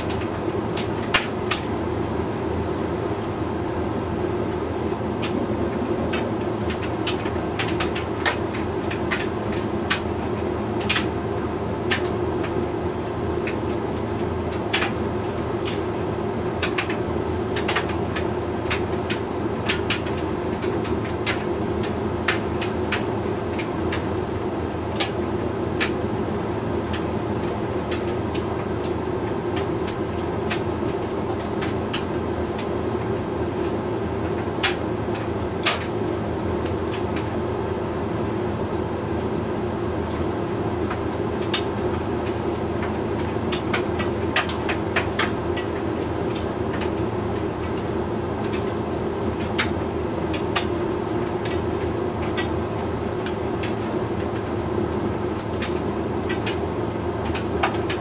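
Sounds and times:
dryer drum and fan humming: 0.0s - 58.0s
light clicks of load tumbling: 16.6s - 17.0s, 26.9s - 38.4s, 40.1s - 50.7s, 55.4s - 56.6s.

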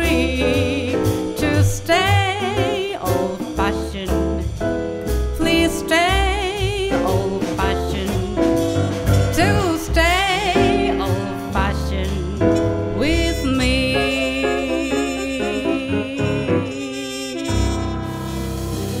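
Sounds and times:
jazz combo playing swing ballad: 0.0s - 19.0s
lead melody with vibrato: 9.4s - 19.0s.

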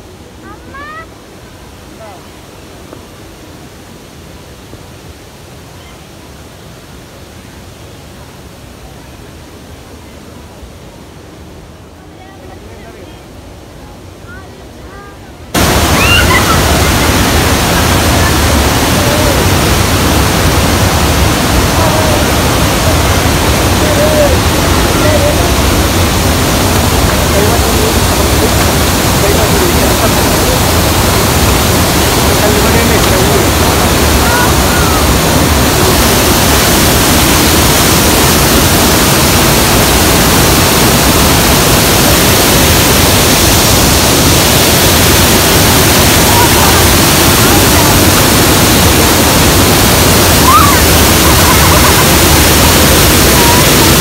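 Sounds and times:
waterfall rushing: 0.0s - 54.0s
faint voices: 11.9s - 36.8s, 44.8s - 54.0s.

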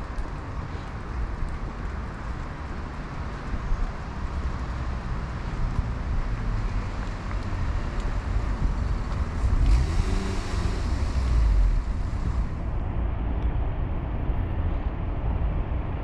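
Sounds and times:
vehicle passing on wet road: 0.0s - 12.7s
low traffic rumble: 0.0s - 16.0s.

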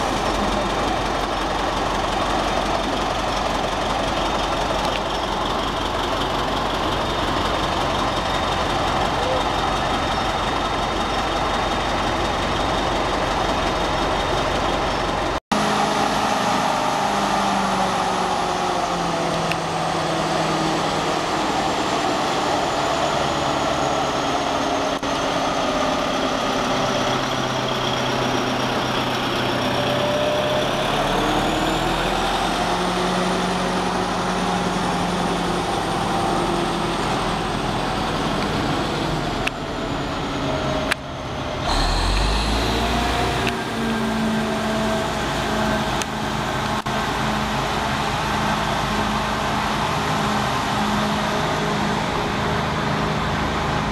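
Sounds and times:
diesel locomotive engine running: 0.0s - 53.9s
high sliding whine: 41.6s - 46.8s.

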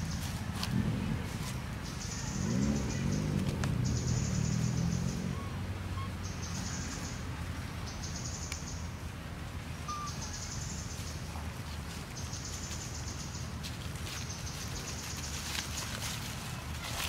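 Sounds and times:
steady low rumble: 0.0s - 5.8s.

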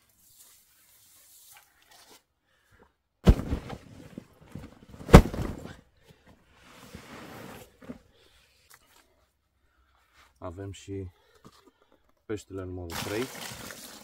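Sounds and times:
loud thumps: 3.2s - 3.9s, 5.0s - 5.8s.

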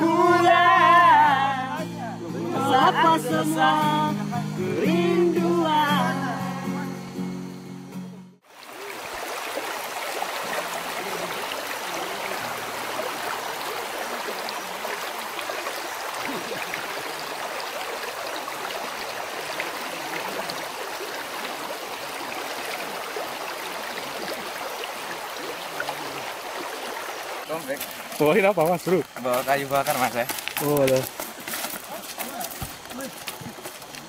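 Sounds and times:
river rushing over pebbles: 8.4s - 34.0s.

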